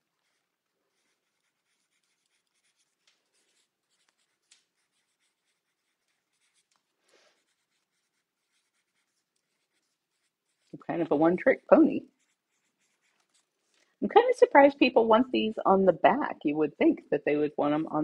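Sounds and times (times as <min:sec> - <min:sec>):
pen scratching on paper: 0:00.1 - 0:13.6.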